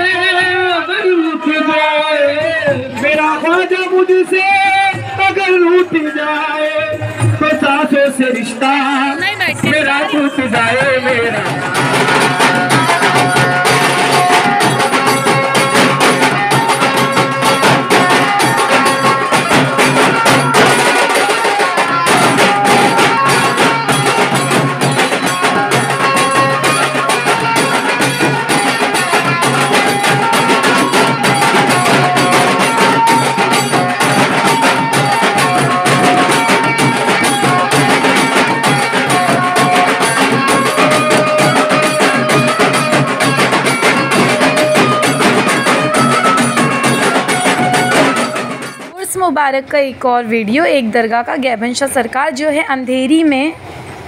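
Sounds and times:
barrel drums beating: 6.8s - 49.3s
melody of held notes: 10.7s - 49.0s.

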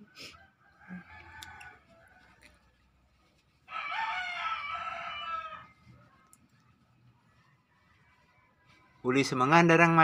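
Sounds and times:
rooster crowing: 0.0s - 2.7s, 3.7s - 5.8s.

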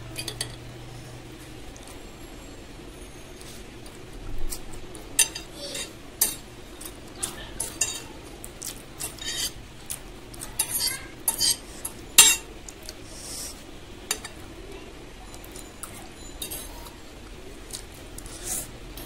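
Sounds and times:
chewing: 6.8s - 9.2s, 15.3s - 19.0s
fork scraping a plate: 8.7s - 9.6s, 10.4s - 14.4s.

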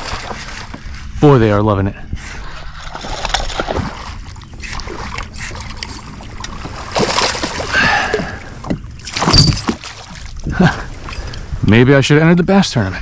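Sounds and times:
fish splashing and thrashing: 0.0s - 1.2s, 2.4s - 11.5s
water sloshing: 0.0s - 1.2s, 2.3s - 11.6s.

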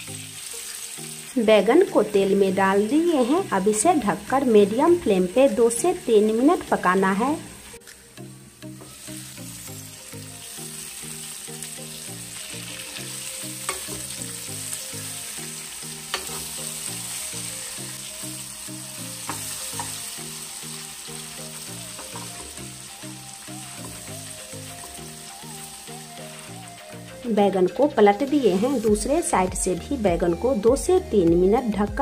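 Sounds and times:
eggplant sizzling in oil: 0.0s - 26.9s, 27.9s - 29.8s
soft background music: 0.0s - 32.0s
steel spoon clinking against pan: 13.6s - 14.0s.

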